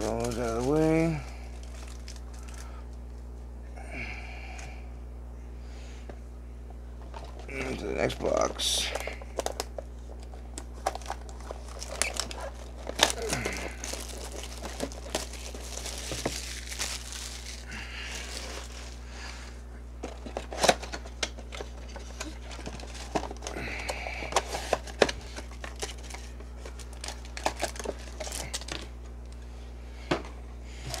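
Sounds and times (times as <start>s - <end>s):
wrapping rustling and tearing: 0.0s - 2.7s, 7.5s - 19.0s, 20.1s - 23.6s, 24.3s - 28.9s.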